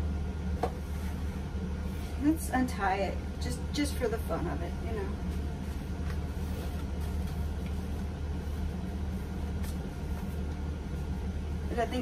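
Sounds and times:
low machine hum: 0:00.0 - 0:12.0
fabric rustling: 0:05.0 - 0:11.4.

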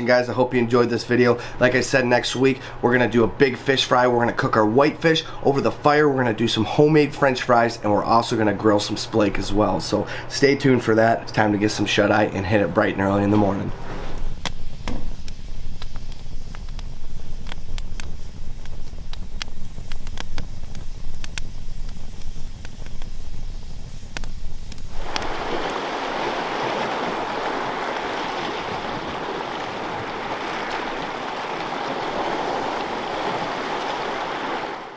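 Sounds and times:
campfire crackling and popping: 0:14.4 - 0:34.8
water rushing: 0:24.9 - 0:34.9
waves washing against rocky shore: 0:24.9 - 0:34.9.

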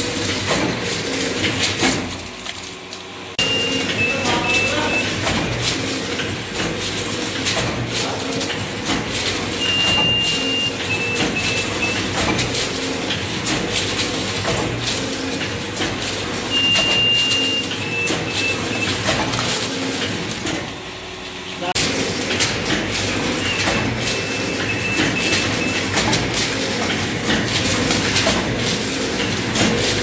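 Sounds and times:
machine clicks and clacks: 0:00.0 - 0:20.8, 0:21.8 - 0:30.0
machine hum: 0:00.0 - 0:30.0
short high beeps: 0:03.4 - 0:05.2, 0:09.6 - 0:12.2, 0:16.5 - 0:19.0, 0:23.5 - 0:25.9.

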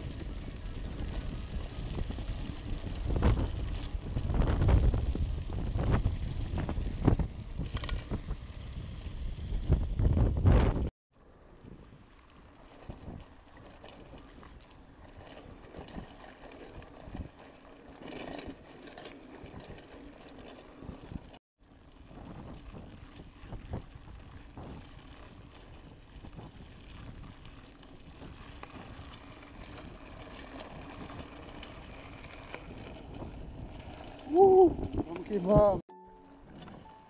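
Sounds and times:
bike knocking and rattling: 0:00.0 - 0:10.9, 0:11.6 - 0:35.8
wind on microphone: 0:00.0 - 0:10.9, 0:22.0 - 0:35.8
bike tyres on stony dirt: 0:00.0 - 0:35.8.

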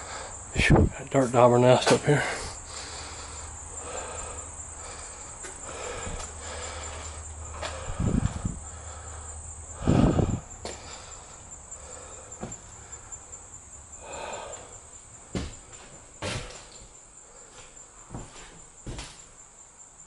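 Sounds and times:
high insect trill: 0:00.0 - 0:20.0
footsteps and thumps indoors: 0:05.4 - 0:08.6, 0:12.4 - 0:12.8, 0:15.2 - 0:19.4.

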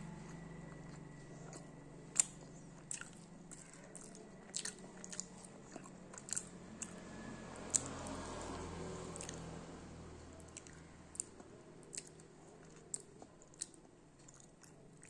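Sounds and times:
crunchy sweet being chewed: 0:00.0 - 0:07.0, 0:09.1 - 0:09.4, 0:10.4 - 0:15.0.

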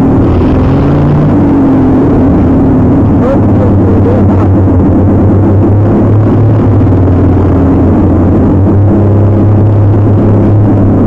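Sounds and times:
truck engine running loud: 0:00.0 - 0:11.0.

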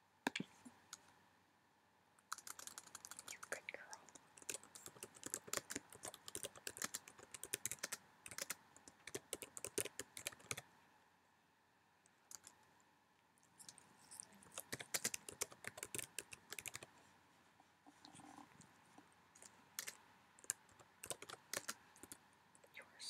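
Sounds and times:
computer keyboard typing: 0:02.3 - 0:10.6, 0:12.3 - 0:12.5, 0:14.5 - 0:16.9, 0:19.4 - 0:22.2.

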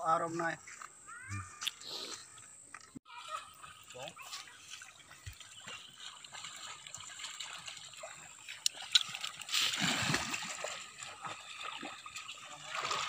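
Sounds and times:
water splashing from wading: 0:03.3 - 0:13.0.

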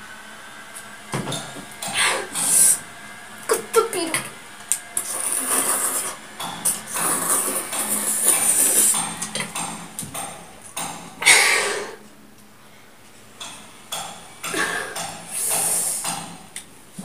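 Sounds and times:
noodle slurping: 0:05.0 - 0:09.0.

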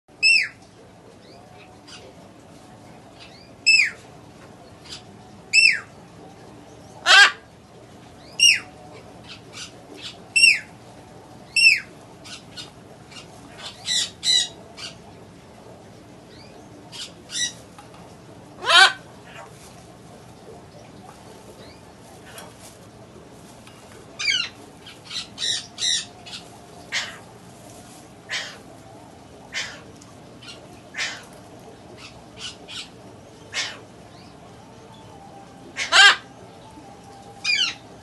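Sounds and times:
macaws squawking: 0:07.0 - 0:07.4, 0:18.6 - 0:19.5, 0:24.2 - 0:27.3, 0:27.9 - 0:28.7, 0:29.5 - 0:31.4, 0:32.0 - 0:33.9, 0:35.8 - 0:36.3.

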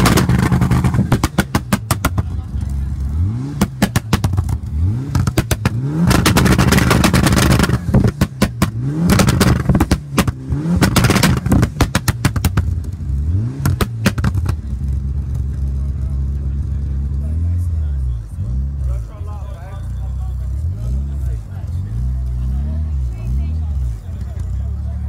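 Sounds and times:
exhaust pops and bangs: 0:00.0 - 0:17.2
car engine revving: 0:00.0 - 0:25.0.

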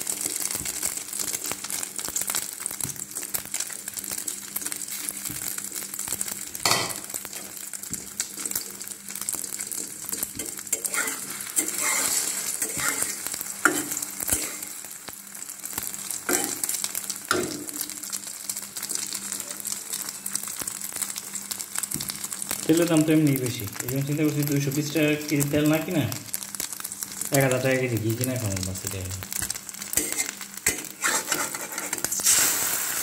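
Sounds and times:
egg sizzling and crackling: 0:00.0 - 0:33.0
spatula scraping and tapping a pan: 0:06.6 - 0:08.2, 0:09.4 - 0:14.6, 0:16.3 - 0:16.7, 0:29.4 - 0:32.2.

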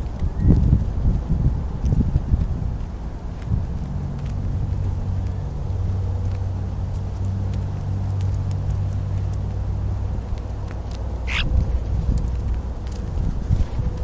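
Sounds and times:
birds pecking taps: 0:10.2 - 0:13.0
starling harsh squawk: 0:11.2 - 0:11.5.

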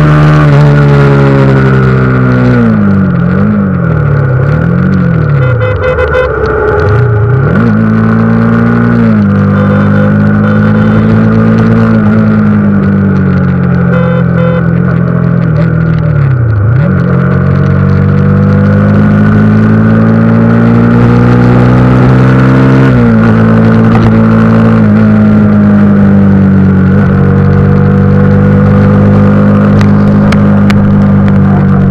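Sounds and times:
motorcycle engine revving: 0:00.0 - 0:31.9.

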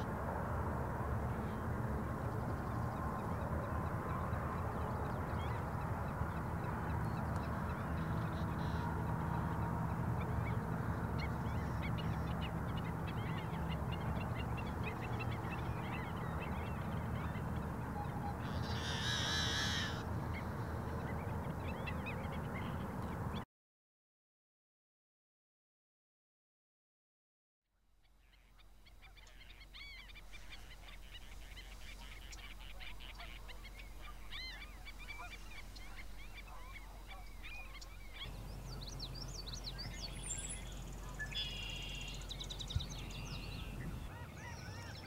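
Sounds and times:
blackbird harsh buzzing song: 0:18.1 - 0:20.6, 0:29.0 - 0:45.0
blackbird short harsh calls: 0:18.5 - 0:20.0.

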